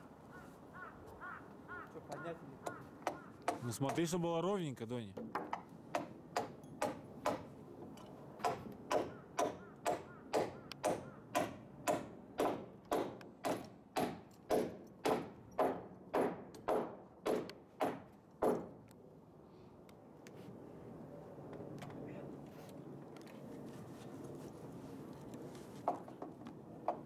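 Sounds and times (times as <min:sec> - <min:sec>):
hammer driving a nail into wood: 0:05.2 - 0:07.5, 0:08.4 - 0:18.8.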